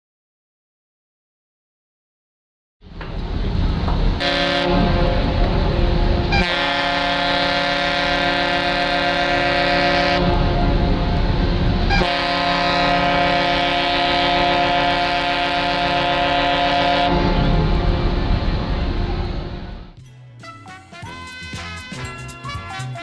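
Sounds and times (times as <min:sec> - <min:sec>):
low rumble: 0:02.9 - 0:07.0, 0:10.1 - 0:13.3, 0:15.8 - 0:20.0
ship's whistle blasts: 0:04.2 - 0:05.2, 0:06.3 - 0:10.4, 0:11.9 - 0:17.6.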